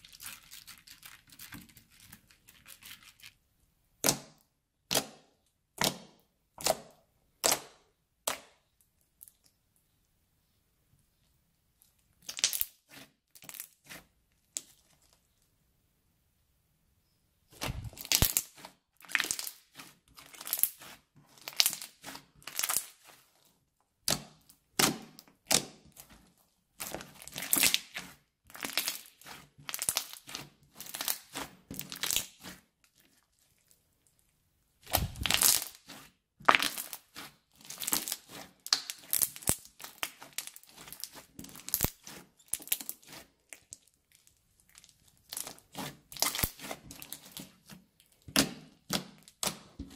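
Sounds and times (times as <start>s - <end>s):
slime crackling and popping: 12.2s - 15.1s, 17.6s - 23.3s, 26.8s - 34.2s, 34.8s - 49.9s.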